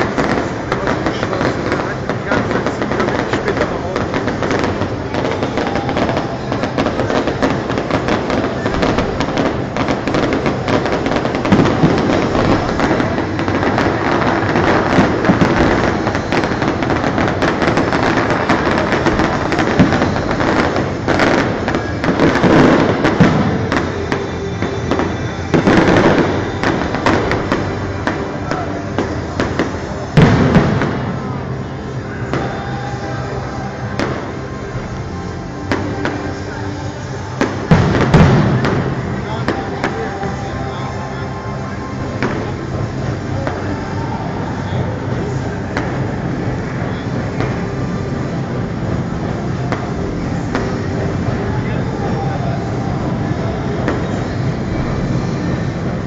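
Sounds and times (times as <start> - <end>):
firework shells booming: 0.0 - 31.4, 37.3 - 40.1
firework crackle: 0.0 - 56.0
loud firework bangs: 0.0 - 56.0.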